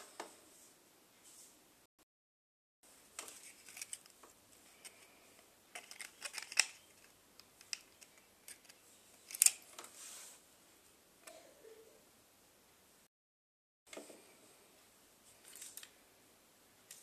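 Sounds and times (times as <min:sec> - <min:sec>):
plastic clicks and crackles: 0:03.2 - 0:09.9, 0:15.4 - 0:16.0.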